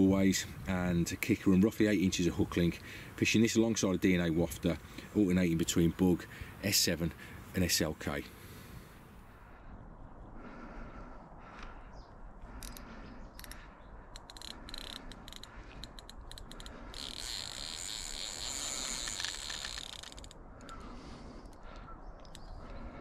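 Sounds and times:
fishing reel clicking: 0:12.6 - 0:20.8
fishing reel buzzing: 0:14.2 - 0:21.6.

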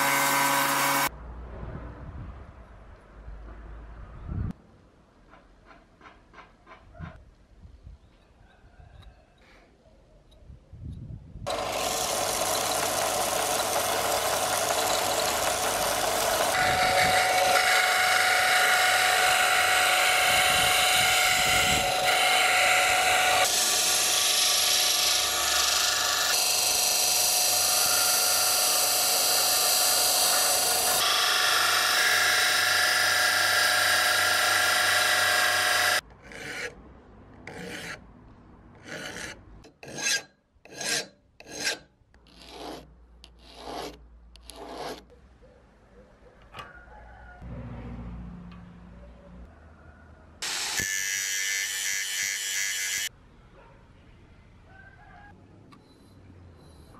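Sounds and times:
disc sander grinding metal: 0:11.5 - 0:36.0, 0:50.4 - 0:53.1
hand file strokes on steel: 0:37.5 - 0:38.0, 0:38.8 - 0:45.1.

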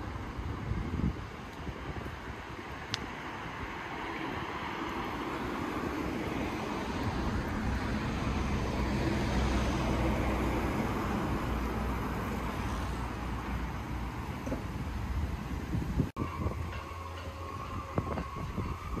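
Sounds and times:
car passing: 0:01.7 - 0:15.9.

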